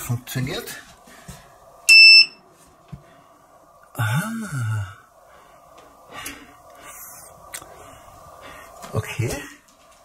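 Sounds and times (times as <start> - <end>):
faint steady hum: 0.0 - 10.0
man humming hmm: 3.9 - 5.0.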